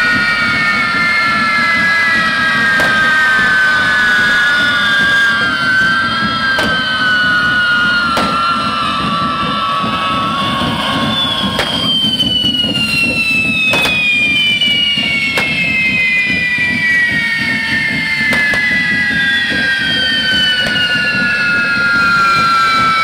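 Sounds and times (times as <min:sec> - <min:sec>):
whistling fireworks: 0:00.0 - 0:23.0
firework cracks: 0:08.1 - 0:08.7, 0:13.7 - 0:15.8.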